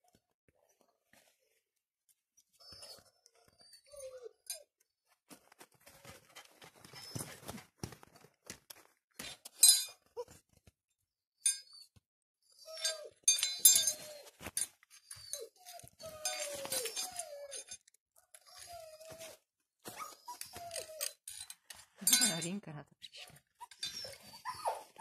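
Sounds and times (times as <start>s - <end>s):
puppies whining and yelping: 2.5s - 4.7s, 5.8s - 7.6s, 11.5s - 21.5s, 23.2s - 25.0s
sharp clicks and clinks: 9.5s - 10.0s, 12.7s - 18.0s, 20.7s - 22.6s.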